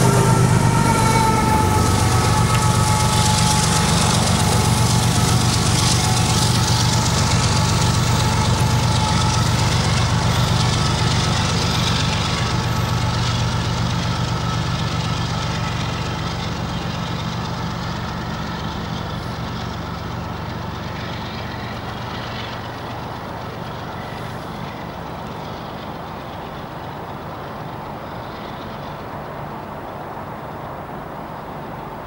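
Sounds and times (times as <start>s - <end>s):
diesel locomotive droning: 0.0s - 32.0s.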